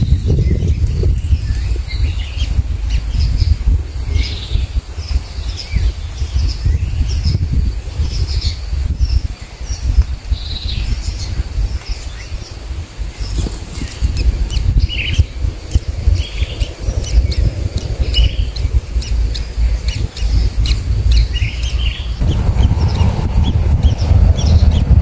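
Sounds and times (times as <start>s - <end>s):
steady low rumble: 0.0s - 25.0s
bird chirps: 13.2s - 24.9s.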